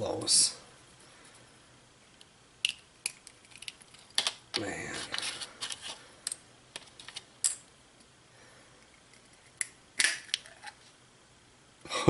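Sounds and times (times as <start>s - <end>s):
eggshell cracking: 2.6s - 4.4s.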